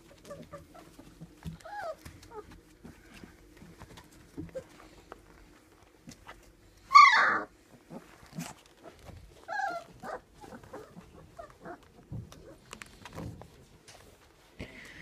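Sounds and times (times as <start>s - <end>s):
puppies whining and yelping: 0.0s - 3.3s, 6.8s - 12.8s
small clicks and rustles: 0.0s - 6.8s, 7.8s - 15.0s.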